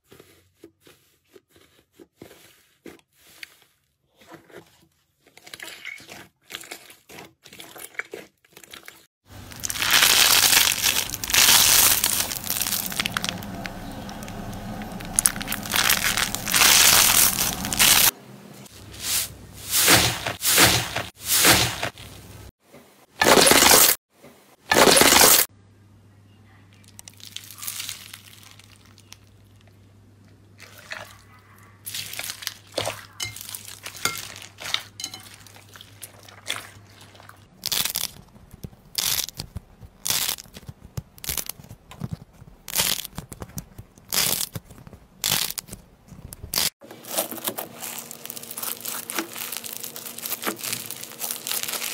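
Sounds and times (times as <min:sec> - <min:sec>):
hands squeezing slime: 0:05.4 - 0:18.1, 0:27.0 - 0:29.3, 0:31.9 - 0:45.8, 0:47.7 - 0:51.9
slime crackling and popping: 0:09.4 - 0:18.1, 0:37.6 - 0:45.8, 0:47.8 - 0:51.9.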